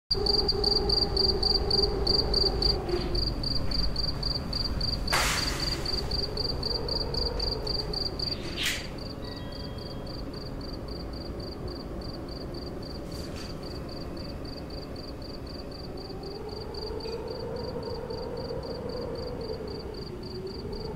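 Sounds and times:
cricket chirping: 0:00.1 - 0:20.9
low rumble: 0:00.2 - 0:09.2.

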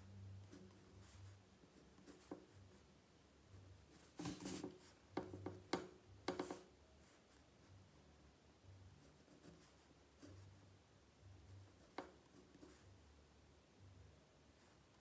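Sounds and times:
pen scratching on paper: 0:03.9 - 0:05.1, 0:09.0 - 0:10.6.

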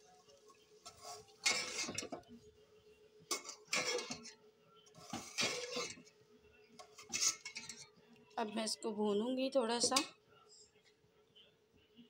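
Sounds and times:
metal spoon scraping a pot: 0:00.8 - 0:02.2, 0:03.3 - 0:04.4, 0:05.0 - 0:06.1, 0:06.8 - 0:07.9.

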